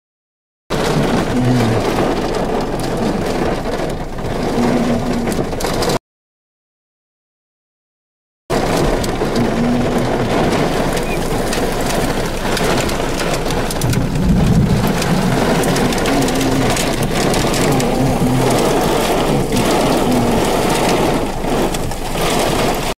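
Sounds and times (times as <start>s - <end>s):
heavy rain on vehicle: 0.7s - 6.0s, 8.5s - 22.9s
low rumble: 8.8s - 22.8s.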